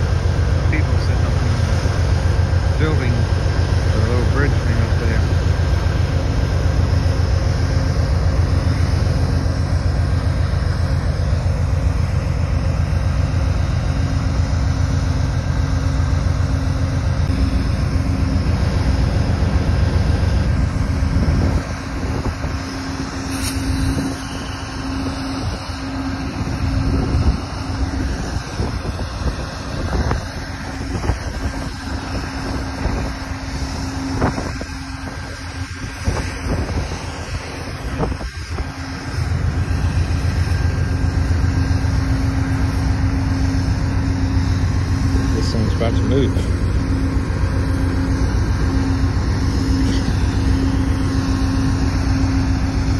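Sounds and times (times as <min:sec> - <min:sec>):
locomotive engine hum: 0:00.0 - 0:52.9
train rumbling past: 0:00.0 - 0:52.9
wind on microphone: 0:19.6 - 0:22.6, 0:25.3 - 0:33.4, 0:34.0 - 0:39.4.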